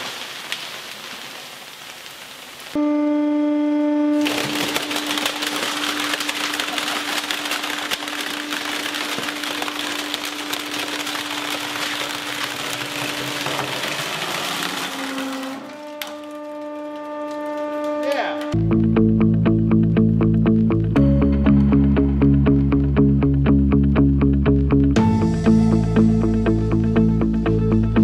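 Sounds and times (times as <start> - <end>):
hydraulic press crushing plastic: 4.2 - 17.8.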